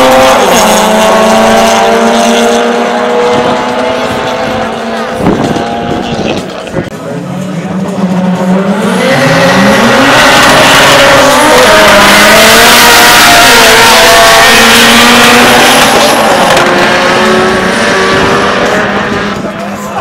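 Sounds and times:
drag racing cars accelerating: 0.0s - 20.0s.

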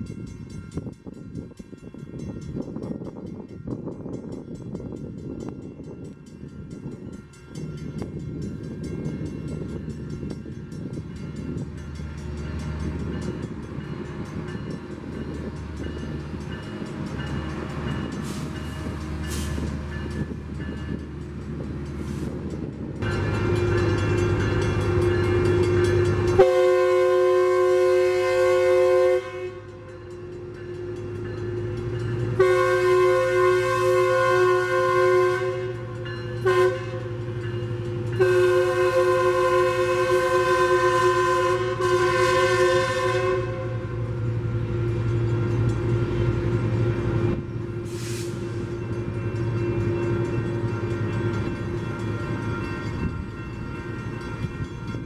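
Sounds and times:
train rumble: 0.0s - 55.0s
train horn blasts: 23.0s - 51.4s.

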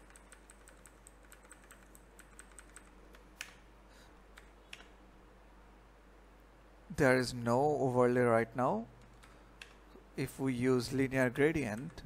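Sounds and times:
computer keyboard keystrokes: 0.0s - 3.6s, 4.3s - 4.9s, 9.0s - 9.8s, 11.6s - 12.0s.

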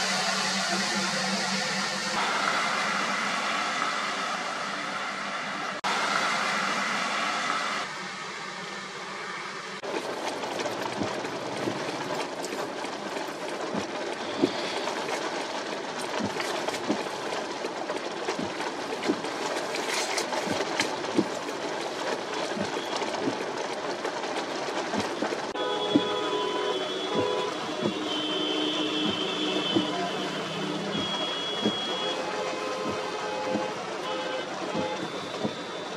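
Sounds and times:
steady hum: 0.0s - 9.1s
heavy rain on car windshield: 0.0s - 35.9s.

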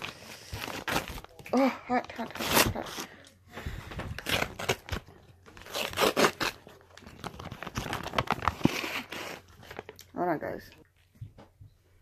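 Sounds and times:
paper wrapping crinkling and tearing: 0.0s - 10.0s.

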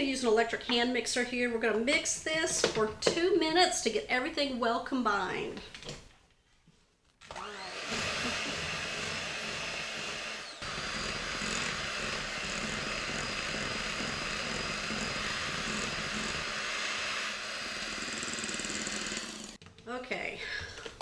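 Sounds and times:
electric hand mixer whirring: 7.2s - 19.6s.

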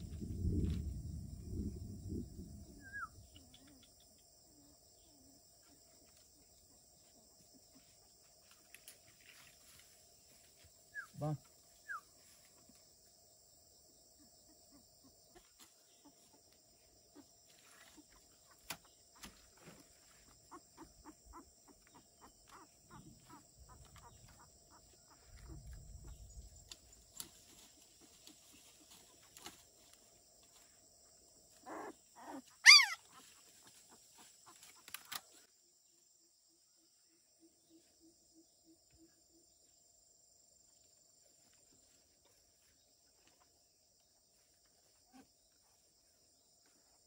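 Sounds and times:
insects humming: 0.0s - 47.0s
dog yelping: 31.6s - 33.2s
dog crying: 31.7s - 33.1s.

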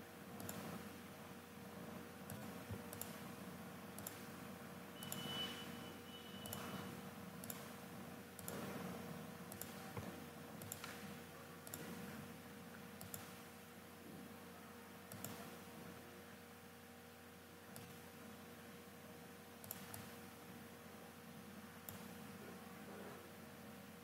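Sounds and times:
faint steady hum: 0.0s - 24.0s
computer mouse clicking: 0.4s - 0.7s, 2.3s - 3.2s, 4.0s - 4.3s, 6.4s - 6.7s, 7.4s - 7.8s, 8.4s - 8.7s, 9.5s - 12.0s, 13.0s - 13.4s, 15.1s - 15.5s, 17.7s - 18.0s, 19.6s - 20.2s, 21.8s - 22.2s.

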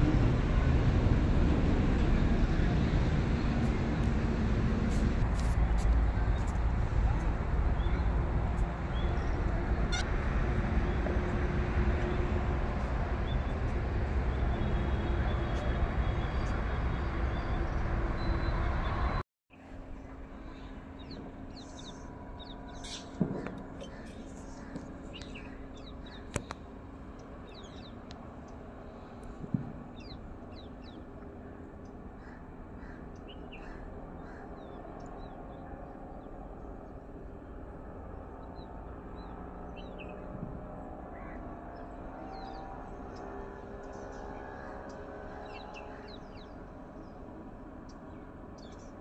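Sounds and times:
steady low rumble: 0.0s - 43.3s
outdoor background noise: 0.0s - 49.0s
small birds chirping: 20.1s - 29.2s, 29.9s - 37.5s, 38.4s - 40.3s, 41.1s - 47.3s, 47.9s - 49.0s.

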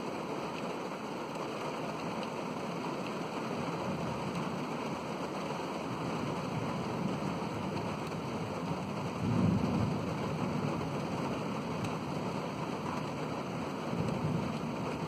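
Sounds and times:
heavy rain: 0.0s - 15.0s
low rumble of thunder: 6.5s - 12.3s, 13.7s - 15.0s.

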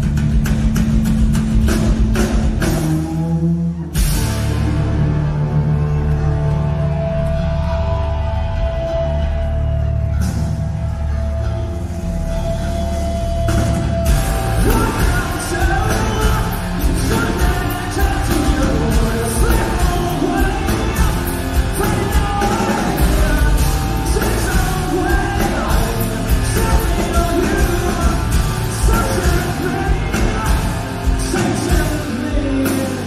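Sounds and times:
heavy rock band playing: 0.0s - 33.0s
male lead vocal singing: 14.2s - 33.0s.

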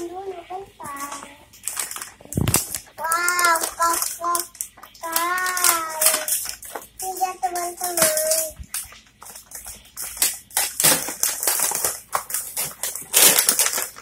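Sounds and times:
toy packaging crinkling: 0.9s - 14.0s
child singing: 3.0s - 6.3s, 7.0s - 8.6s.

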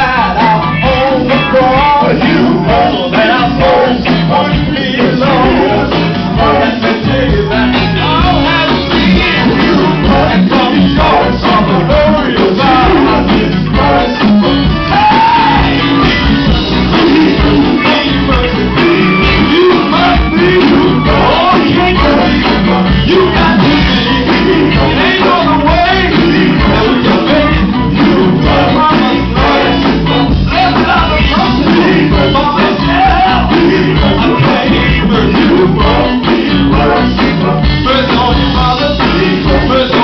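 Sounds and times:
drum kit steady beat: 0.0s - 40.0s
electric guitars: 0.0s - 40.0s
gospel group singing: 0.0s - 40.0s
keyboard: 0.0s - 40.0s.

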